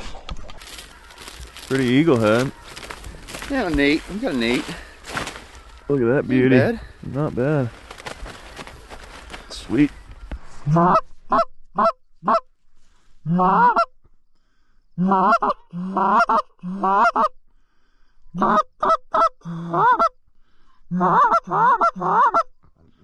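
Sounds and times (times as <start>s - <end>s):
goose call clucks and honks: 10.7s - 12.5s, 13.3s - 13.9s, 15.0s - 17.4s, 18.4s - 20.2s, 20.9s - 22.5s.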